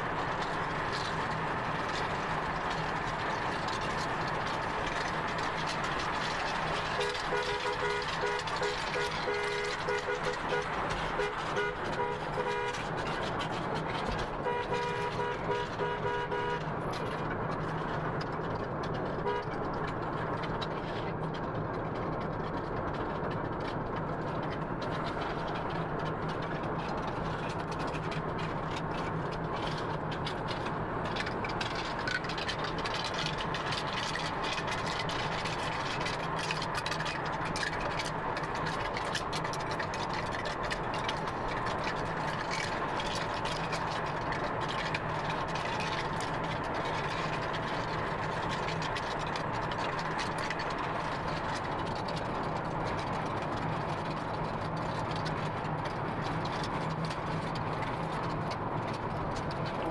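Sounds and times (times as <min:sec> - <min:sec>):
road and engine noise in car: 0:00.0 - 0:59.9
car horn beeps: 0:07.0 - 0:12.8, 0:14.4 - 0:16.6, 0:19.2 - 0:19.5.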